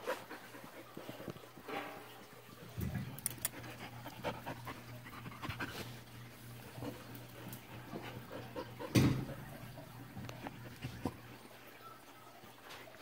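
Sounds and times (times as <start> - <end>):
puppy panting: 0.0 - 1.6, 3.2 - 11.9.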